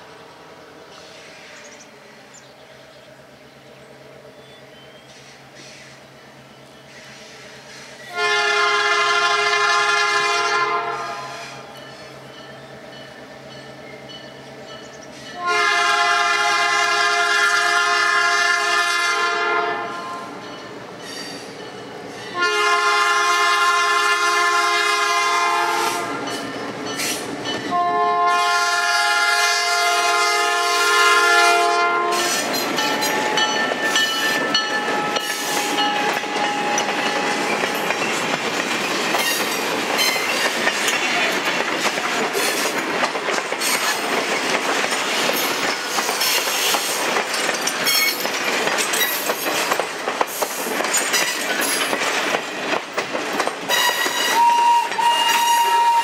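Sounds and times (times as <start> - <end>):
train wheels rumbling: 0.0 - 56.0
locomotive air horn blasts: 8.1 - 11.6, 15.4 - 20.4, 22.3 - 26.3, 27.7 - 33.4, 53.7 - 56.0
wheels clacking over rail joints: 19.3 - 24.2, 24.8 - 27.9, 31.9 - 56.0.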